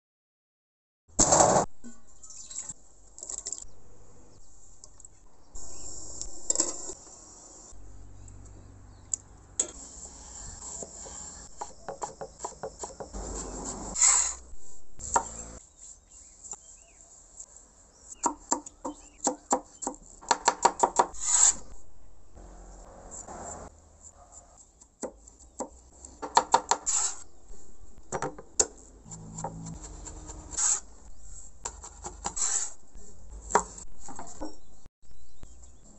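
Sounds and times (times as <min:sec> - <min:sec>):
knife scraping board: 0:10.0 - 0:14.4, 0:21.1 - 0:21.7, 0:26.7 - 0:27.3, 0:29.1 - 0:34.6
knife chopping on wooden board: 0:10.7 - 0:13.1.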